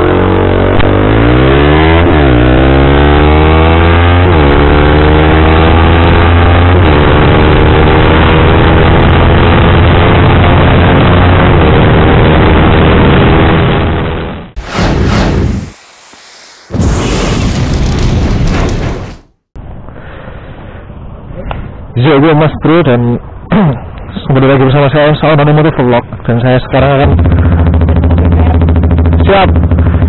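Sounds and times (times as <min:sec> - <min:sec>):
motorcycle engine accelerating: 0:00.0 - 0:19.3, 0:26.9 - 0:30.0.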